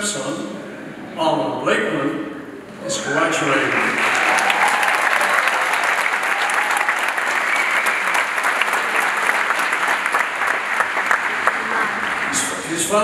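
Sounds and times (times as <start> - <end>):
large audience applauding: 2.9 - 13.0.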